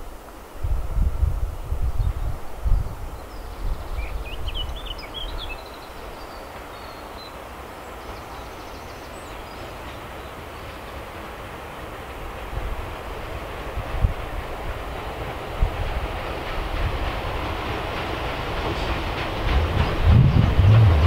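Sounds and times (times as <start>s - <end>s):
diesel locomotive engine drone: 0.0s - 21.0s
rail noise: 0.0s - 21.0s
wind buffeting microphone: 0.6s - 5.8s, 12.4s - 21.0s
bird chirping: 3.2s - 10.7s.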